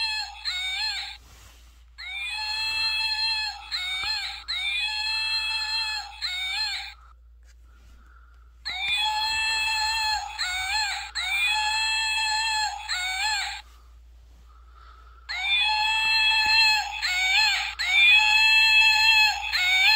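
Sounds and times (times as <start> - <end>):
electronic monkey scream toy: 8.7 - 13.6, 15.3 - 19.9.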